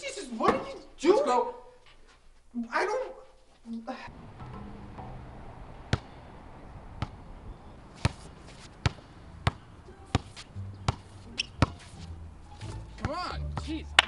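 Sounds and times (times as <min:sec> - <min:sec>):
basketball bouncing on hard court: 0:05.9 - 0:06.2, 0:07.0 - 0:07.2, 0:08.0 - 0:11.0.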